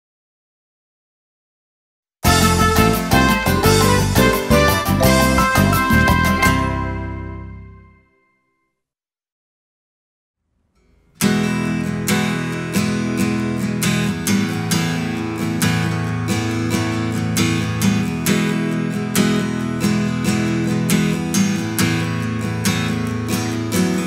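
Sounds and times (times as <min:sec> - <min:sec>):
acoustic guitar strummed chords: 0:02.2 - 0:08.2, 0:10.7 - 0:24.0.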